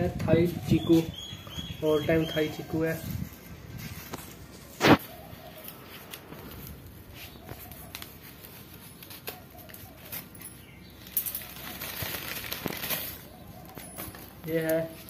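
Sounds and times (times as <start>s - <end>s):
newspaper rustling: 3.2s - 15.0s.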